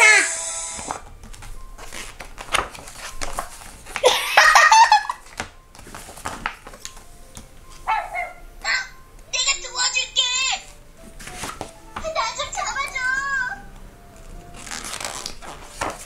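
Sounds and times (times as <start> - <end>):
book pages being handled: 0.8 - 4.1, 5.1 - 7.9, 10.6 - 13.1, 14.1 - 16.0
young child laughing: 4.0 - 5.2.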